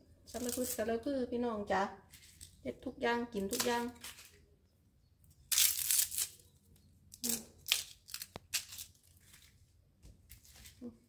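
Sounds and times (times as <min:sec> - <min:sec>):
bamboo sheath tearing: 0:05.5 - 0:06.5, 0:07.1 - 0:09.6.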